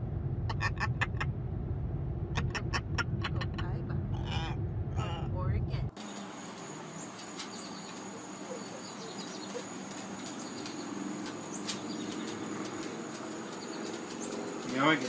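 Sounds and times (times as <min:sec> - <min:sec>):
high insect trill: 0:05.9 - 0:15.0
bird chirps: 0:06.0 - 0:14.5
faint clicks: 0:09.2 - 0:15.0.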